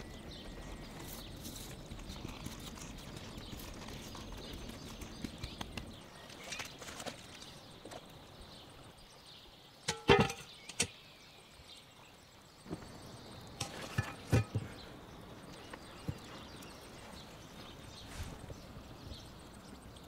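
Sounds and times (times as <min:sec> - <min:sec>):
cast iron pot clanking on rock: 0:09.8 - 0:11.0, 0:13.5 - 0:14.9.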